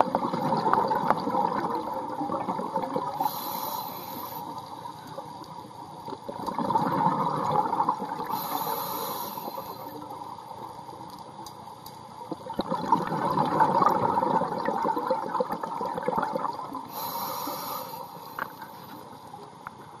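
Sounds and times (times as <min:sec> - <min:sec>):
bubbling exhalation underwater: 0:00.0 - 0:03.2, 0:06.4 - 0:08.3, 0:12.5 - 0:16.8
regulator inhalation hiss: 0:03.2 - 0:04.7, 0:08.3 - 0:10.0, 0:16.9 - 0:19.0.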